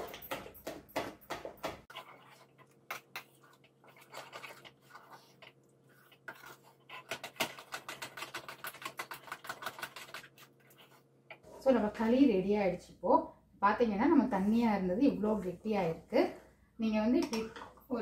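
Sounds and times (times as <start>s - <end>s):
spoon stirring thick batter: 0.0s - 12.8s, 14.0s - 18.0s
spoon scraping and tapping pan: 17.2s - 17.8s.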